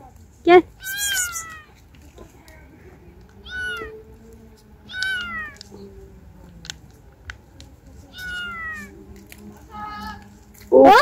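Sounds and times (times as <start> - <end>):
cat meowing: 0.8 - 1.7, 3.4 - 4.0, 4.9 - 5.6, 8.1 - 8.9.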